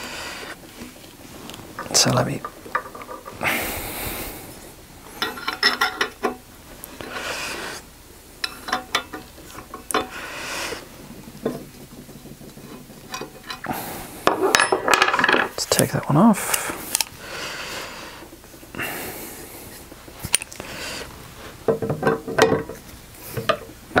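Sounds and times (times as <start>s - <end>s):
metal tools clinking on workbench: 14.4s - 15.6s.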